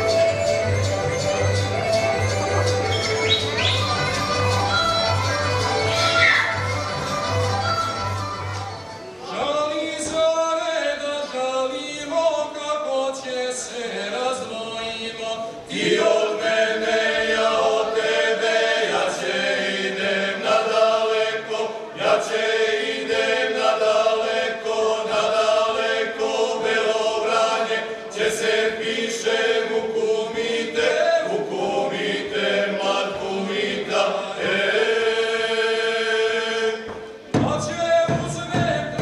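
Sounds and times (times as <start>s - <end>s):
male vocal group singing unaccompanied: 9.2s - 39.0s.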